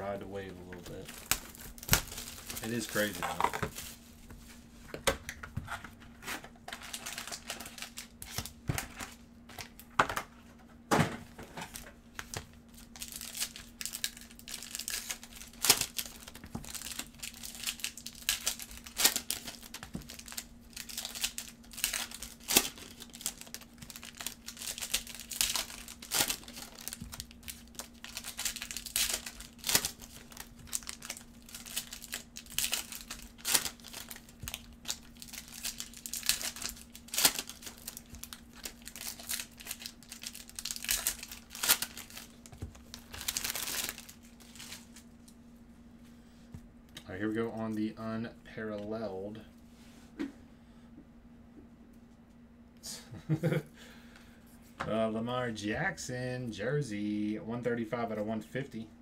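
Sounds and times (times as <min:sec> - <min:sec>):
foil wrappers crinkling and tearing: 0:00.8 - 0:04.1, 0:06.2 - 0:09.9, 0:11.6 - 0:45.1.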